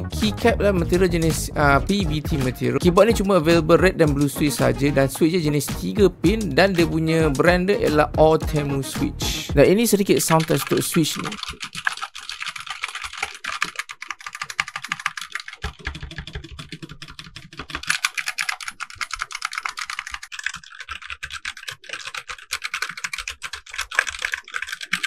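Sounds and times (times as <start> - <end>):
rapid typing on mechanical keyboard: 0.0 - 9.0, 9.6 - 25.0.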